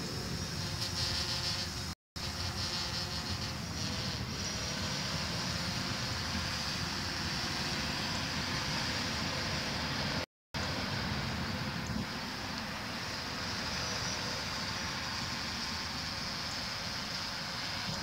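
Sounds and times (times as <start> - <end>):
drone propellers buzzing: 0.0 - 18.0.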